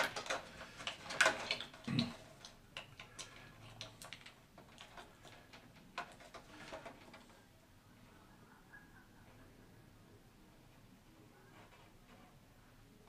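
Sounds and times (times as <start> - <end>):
plastic parts clicking: 0.0 - 7.4.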